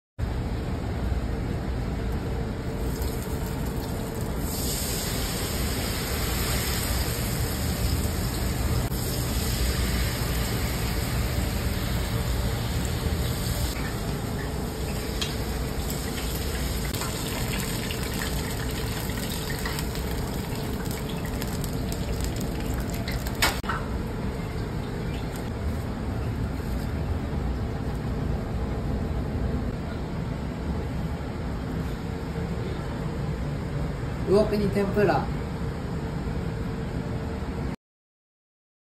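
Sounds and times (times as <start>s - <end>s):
hot oil sizzling: 2.7s - 23.7s.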